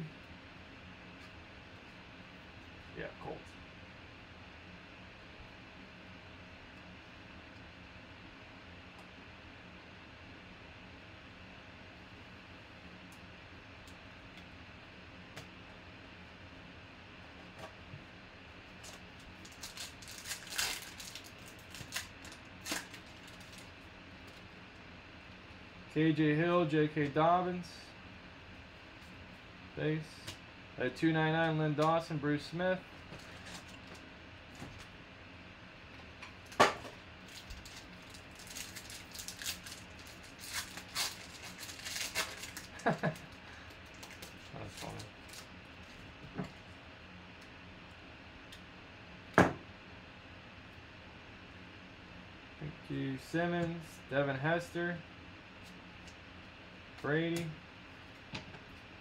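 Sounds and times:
foil wrapper crinkling and tearing: 18.8 - 23.7, 37.2 - 45.5.

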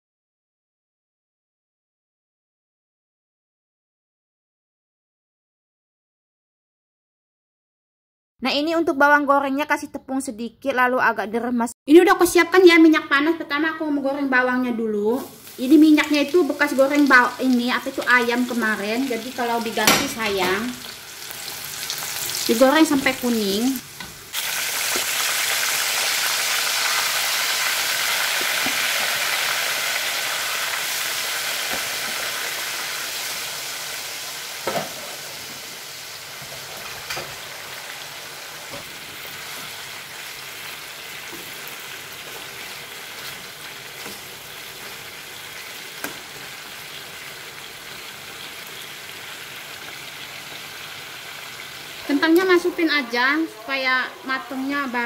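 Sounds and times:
hot oil sizzling: 14.9 - 55.0.

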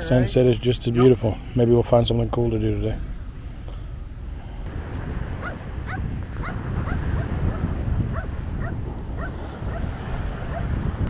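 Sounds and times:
wind buffeting microphone: 4.6 - 11.0
small waves breaking on shore: 4.7 - 11.0.

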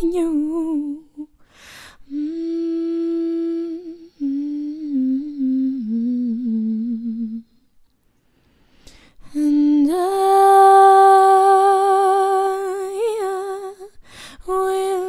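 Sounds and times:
woman singing unaccompanied: 0.0 - 1.3, 2.0 - 7.6, 9.3 - 15.0.

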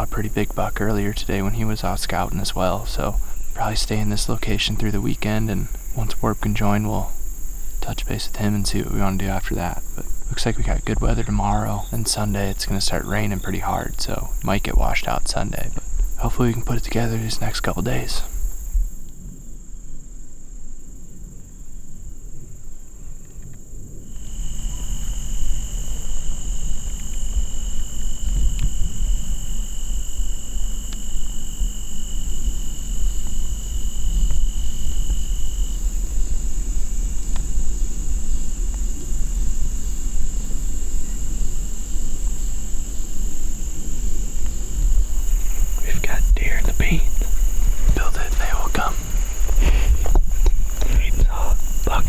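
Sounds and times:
high-pitched insect trill: 0.0 - 52.0
lower insect trill: 0.0 - 52.0.

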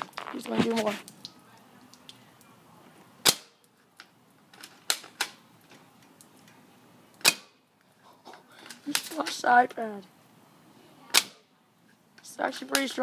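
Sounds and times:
airsoft gun shots: 3.2 - 3.6, 7.2 - 7.6.

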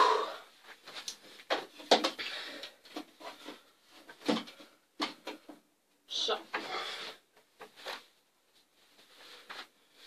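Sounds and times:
loud breath: 0.0 - 0.5, 6.6 - 7.3.

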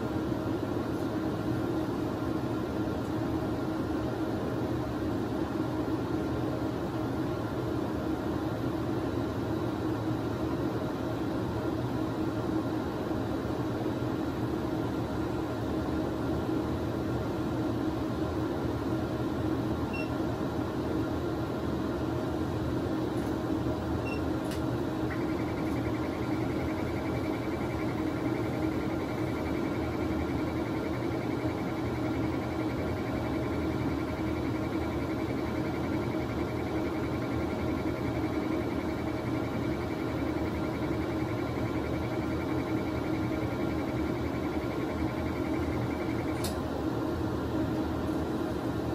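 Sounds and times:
scanner and ventilation hum: 0.0 - 48.9
click: 46.4 - 46.6.

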